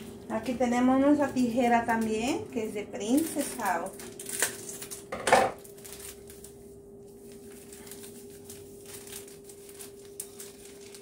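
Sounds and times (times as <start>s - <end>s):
scissors snipping plastic packet: 3.0s - 6.6s
packet crinkling: 3.0s - 11.0s.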